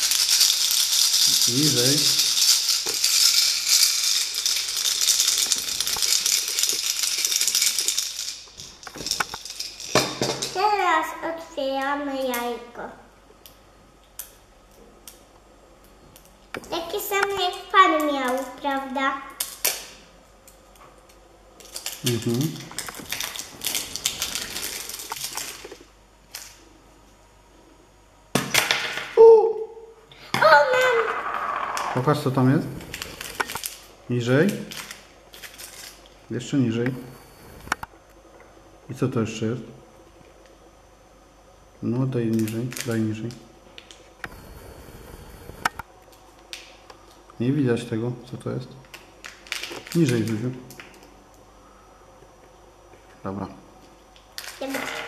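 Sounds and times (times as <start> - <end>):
plastic toy rattling: 0.0 - 9.9.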